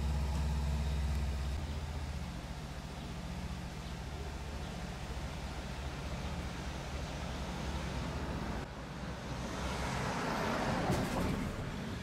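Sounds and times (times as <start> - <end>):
road traffic rumble: 0.0 - 12.0
vehicle passing: 9.3 - 12.0.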